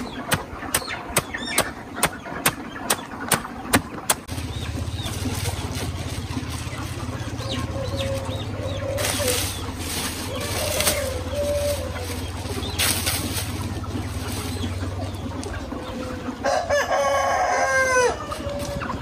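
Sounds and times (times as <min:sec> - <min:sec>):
chickens chirping: 0:00.0 - 0:19.0
machete chopping plant stalks: 0:00.3 - 0:04.4, 0:08.9 - 0:13.7.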